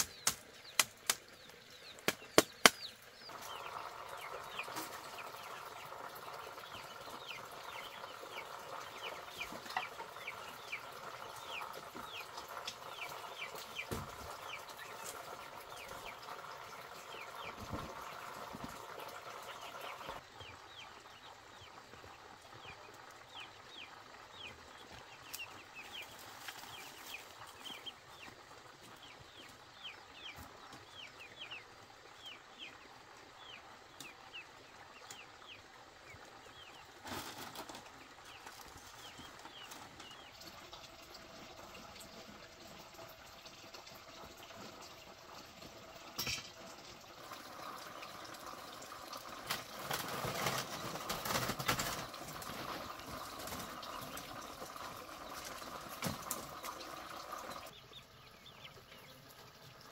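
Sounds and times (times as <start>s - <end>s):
ducklings peeping: 0.0s - 32.8s, 57.7s - 59.4s.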